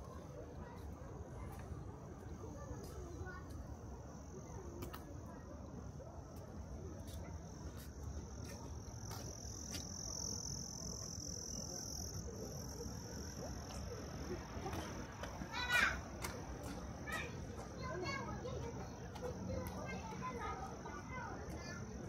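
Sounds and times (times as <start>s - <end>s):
insects trilling: 8.4s - 14.6s.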